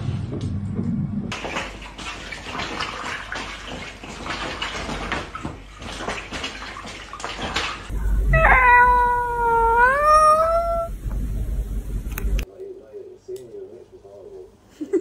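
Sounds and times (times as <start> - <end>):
water sloshing in play mat: 1.3 - 7.9
cat yowling: 8.2 - 11.0.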